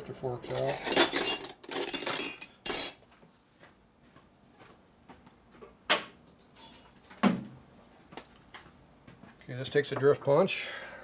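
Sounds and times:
metal hand tools clattering: 0.4s - 3.0s.

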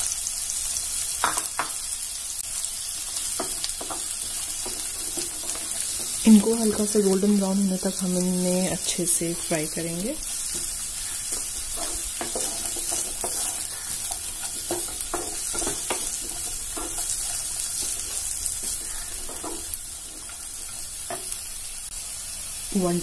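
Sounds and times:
vegetables sizzling in oil: 0.0s - 23.0s
spatula scraping and tapping pan: 3.2s - 7.0s, 10.3s - 21.4s.

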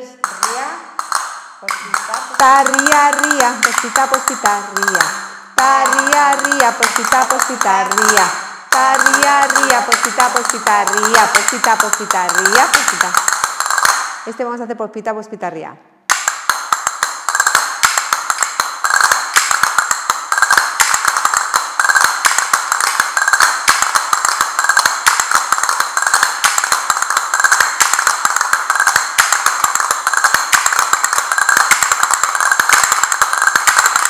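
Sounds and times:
castanets clicking: 0.2s - 14.3s, 16.1s - 34.0s.

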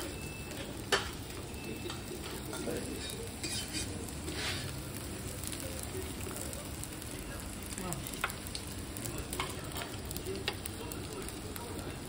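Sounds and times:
faint sizzling hiss: 0.0s - 12.0s
chopsticks and dishes clinking: 0.2s - 4.6s.

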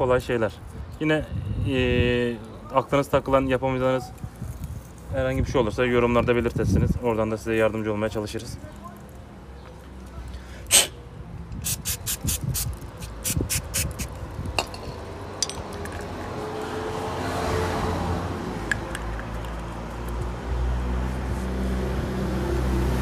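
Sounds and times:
short spray squirts: 11.6s - 14.1s
spray can hissing: 11.6s - 14.2s.

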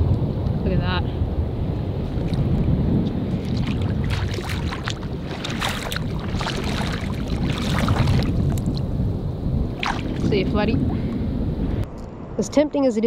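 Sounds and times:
wind buffeting microphone: 0.0s - 13.0s
feet wading through water: 1.9s - 8.9s, 9.7s - 11.0s.

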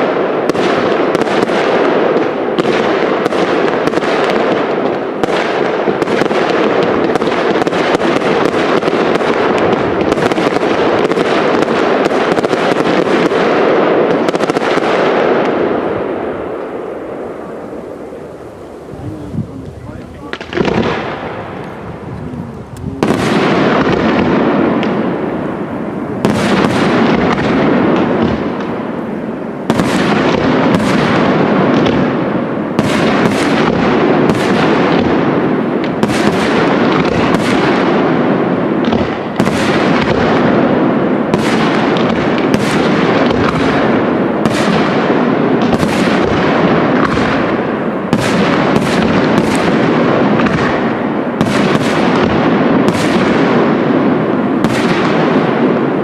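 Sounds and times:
fireworks bursting with sharp bangs: 0.0s - 56.0s
continuous rumble: 17.4s - 29.7s.

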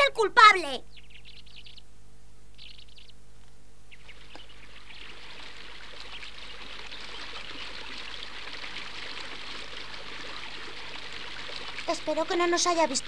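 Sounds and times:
bird chirp: 0.8s - 8.6s
brook babbling: 3.9s - 13.0s.

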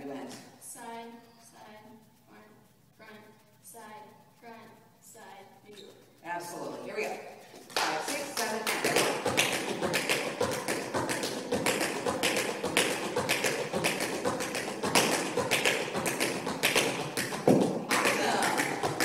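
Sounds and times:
tap shoes on wooden floor: 8.5s - 19.0s
loud foot stamp: 8.8s - 19.0s.

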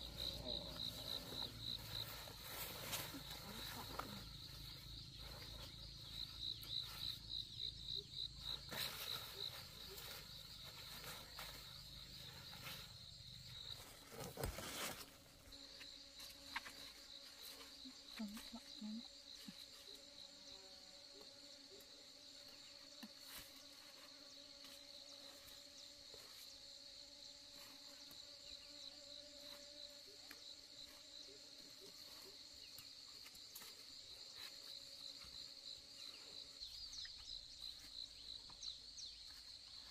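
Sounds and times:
insects trilling: 0.0s - 39.9s.

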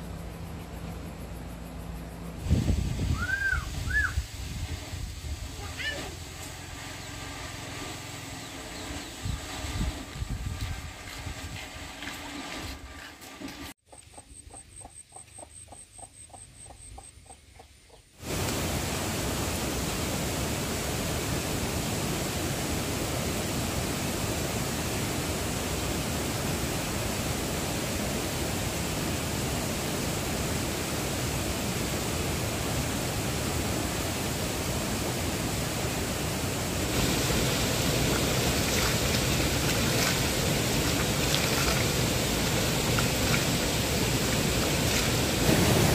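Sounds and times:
stream water rushing: 18.2s - 45.9s
water splashing: 35.1s - 45.9s.

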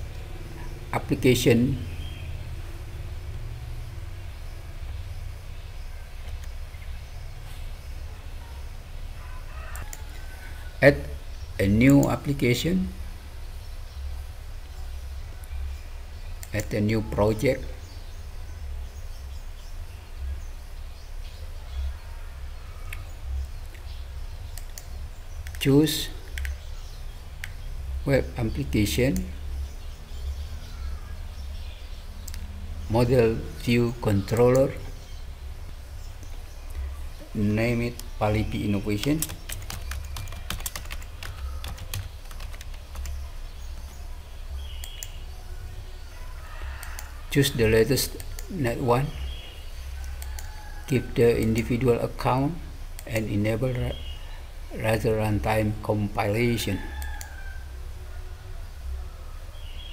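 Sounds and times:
low room rumble: 0.0s - 59.9s
steady low hum: 0.0s - 59.9s
mouse clicks: 26.3s - 26.6s, 44.8s - 45.2s, 46.8s - 47.2s, 50.0s - 50.5s
typing on keyboard: 39.0s - 43.2s.

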